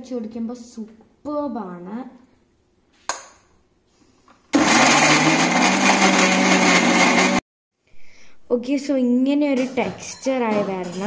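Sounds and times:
mixer grinder motor: 4.5 - 7.4.

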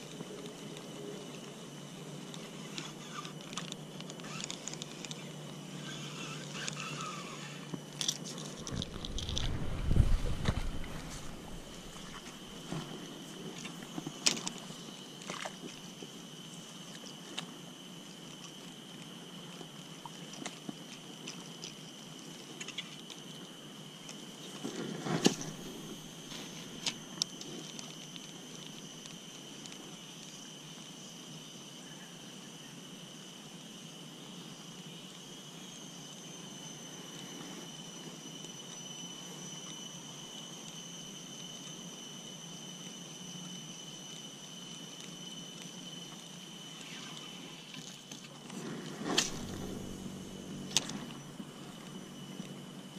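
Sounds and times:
high-pitched insect drone: 0.0 - 52.9
fishing rod and reel clicks: 2.3 - 12.9, 49.1 - 52.6.

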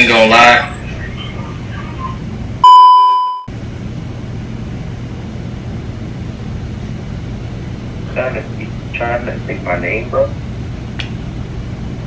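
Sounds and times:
low background hum: 0.0 - 12.0
test-tone beep: 2.6 - 3.5.

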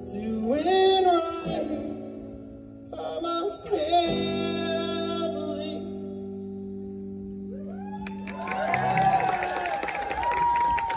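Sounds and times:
audience cheering: 7.6 - 10.9.

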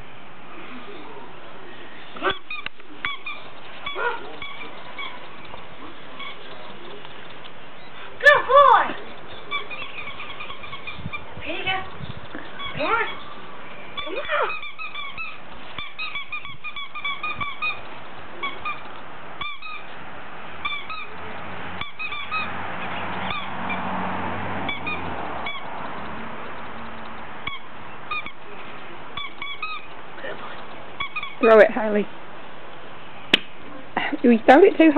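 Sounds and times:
squeaky dog toy squeaking: 2.2 - 5.6, 8.2 - 13.4, 14.0 - 19.9, 20.6 - 21.2, 21.8 - 22.5, 27.4 - 28.4, 29.2 - 29.9, 31.0 - 31.6.

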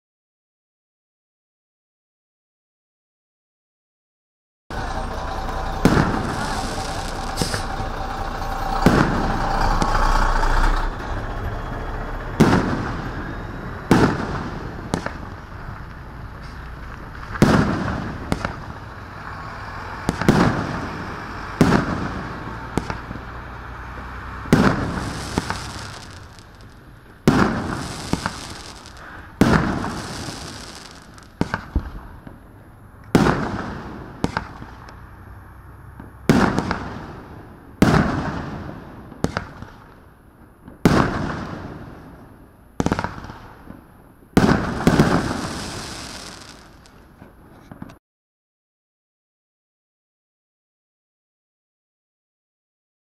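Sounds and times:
firework hiss and crackle: 4.7 - 10.8, 12.4 - 35.2, 36.0 - 43.8, 44.4 - 47.9
firework bangs: 4.7 - 11.0, 12.3 - 35.0, 36.0 - 47.9.

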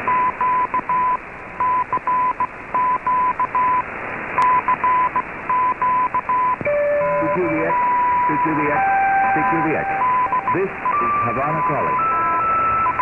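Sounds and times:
radio static hiss: 0.0 - 13.0
morse code beeps: 4.4 - 13.0.

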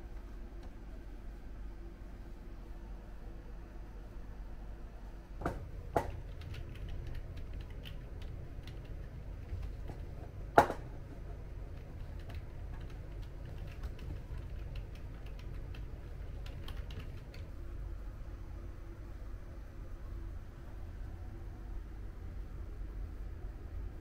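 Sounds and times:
keyboard typing clicks: 6.0 - 10.0, 11.7 - 17.5.

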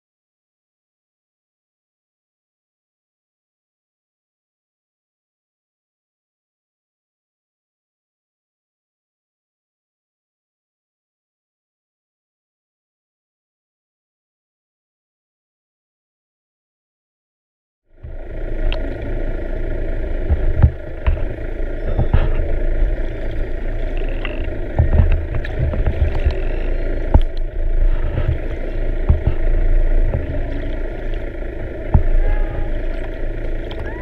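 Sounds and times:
underwater rumble and hiss: 17.9 - 34.0
sharp underwater clicks: 18.6 - 19.1, 20.2 - 34.0.

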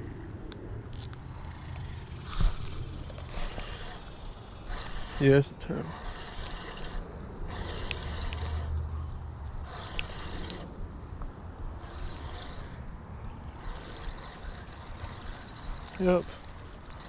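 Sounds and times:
fishing reel whirring: 0.9 - 10.9, 11.7 - 17.0.

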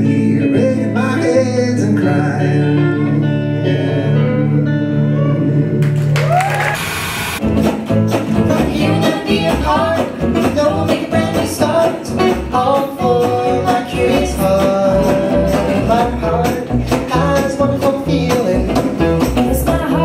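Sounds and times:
man and woman singing: 0.0 - 4.8, 8.2 - 20.0
upright bass: 0.0 - 6.8, 7.4 - 20.0
strummed guitars: 7.4 - 20.0.

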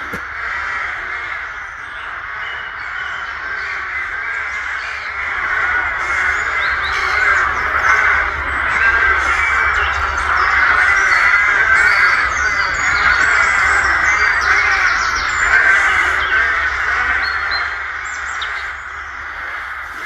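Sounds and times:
rooks cawing: 0.0 - 20.0.

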